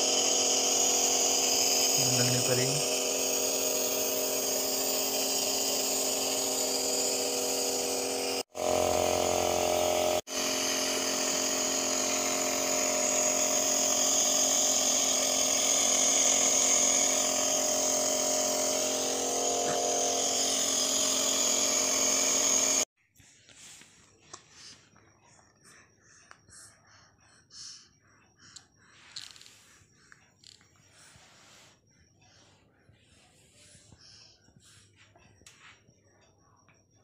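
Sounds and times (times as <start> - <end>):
nebulizer motor buzzing hum: 0.0 - 22.9.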